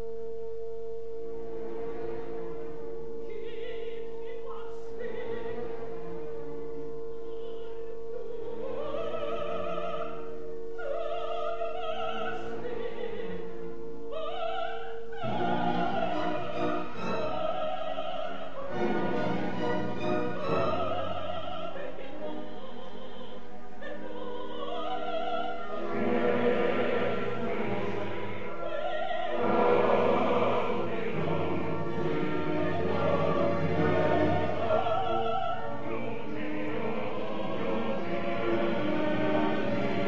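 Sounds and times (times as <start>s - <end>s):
operatic soprano singing: 3.2s - 40.0s
orchestra playing: 15.2s - 21.8s, 25.7s - 40.0s.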